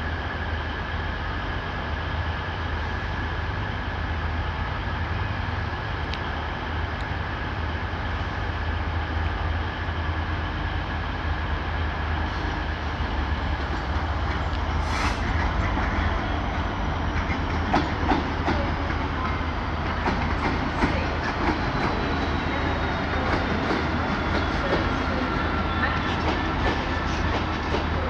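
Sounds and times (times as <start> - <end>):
diesel locomotive engine humming: 0.0 - 28.0
train wheels clicking over rail joints: 17.1 - 28.0.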